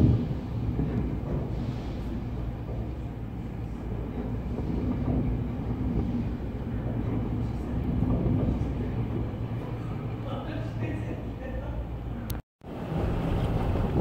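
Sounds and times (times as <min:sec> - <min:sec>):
roaring wind: 0:00.0 - 0:14.0.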